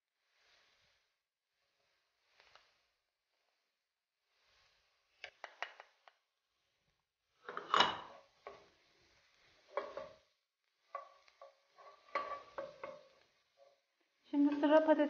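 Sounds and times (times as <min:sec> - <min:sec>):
spatula scraping frying pan: 0:07.4 - 0:15.0.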